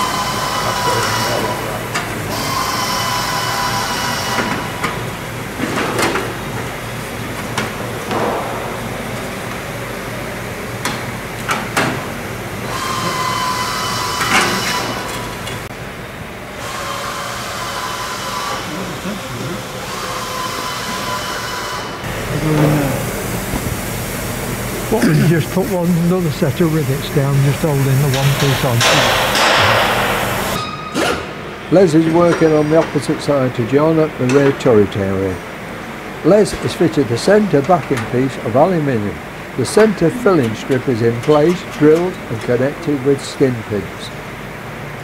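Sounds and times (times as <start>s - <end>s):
workshop background din: 0.0s - 15.9s, 16.6s - 44.5s
sharp knocks: 8.1s - 9.0s, 28.2s - 31.2s
short low hum: 22.0s - 30.6s.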